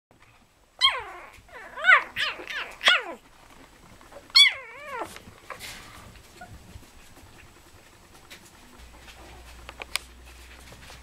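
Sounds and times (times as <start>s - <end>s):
puppies barking: 0.8s - 3.2s, 4.3s - 5.1s.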